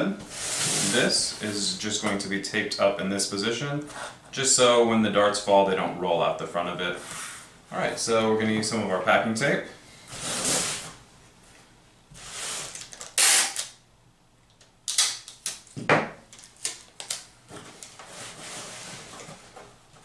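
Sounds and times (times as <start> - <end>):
packing tape ripping off roll: 12.4 - 13.8, 14.8 - 15.8.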